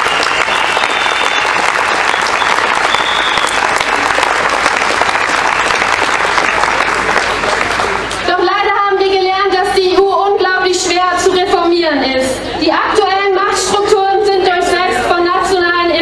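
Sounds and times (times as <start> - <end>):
crowd applauding: 0.0 - 8.3.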